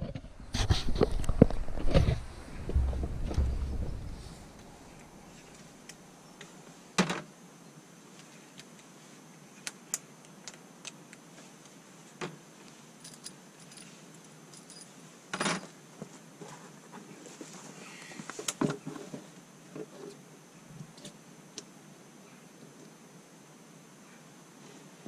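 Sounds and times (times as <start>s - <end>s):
sharp knocks: 0.0s - 4.7s.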